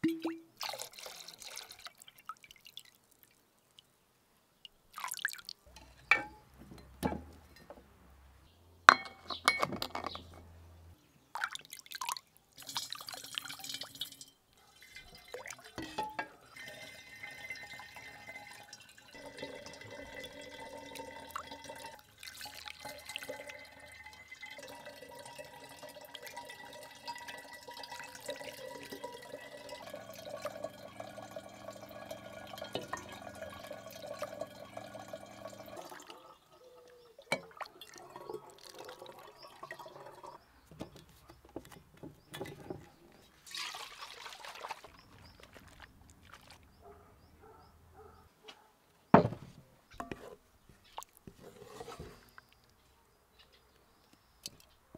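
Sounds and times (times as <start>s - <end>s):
liquid trickling into bottle: 0.0s - 3.4s, 4.9s - 5.8s, 11.4s - 36.4s, 37.2s - 40.5s, 42.3s - 46.8s
liquid dripping into bowl: 4.6s - 7.0s
glass and metal ladle clinks: 8.9s - 10.2s.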